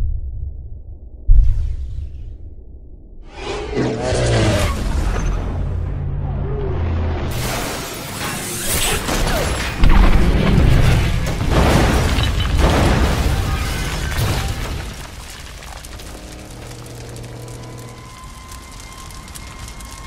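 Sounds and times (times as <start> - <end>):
crashing and smashing: 7.3 - 20.0.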